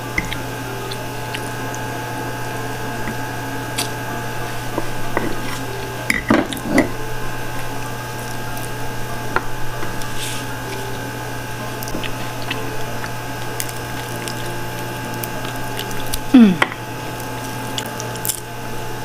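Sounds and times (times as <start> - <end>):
person chewing food: 0.0 - 19.0
steady low hum: 0.0 - 19.0.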